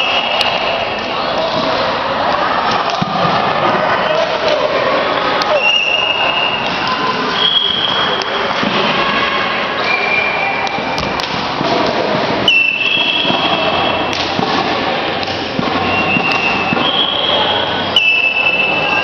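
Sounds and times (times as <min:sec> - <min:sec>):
distant voices in reverberant hall: 0:00.0 - 0:19.0
thuds in hall: 0:10.8 - 0:17.5.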